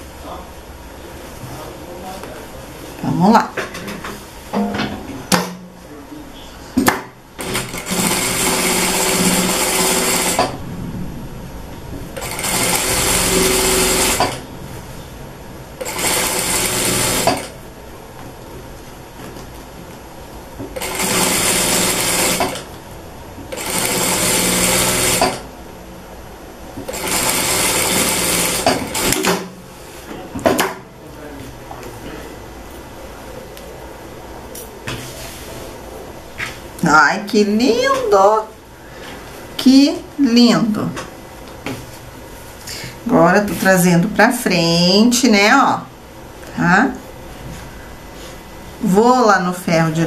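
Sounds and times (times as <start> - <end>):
sewing machine stitching: 7.4 - 10.5, 12.2 - 14.4, 15.8 - 17.5, 20.8 - 22.7, 23.5 - 25.4, 26.9 - 29.4.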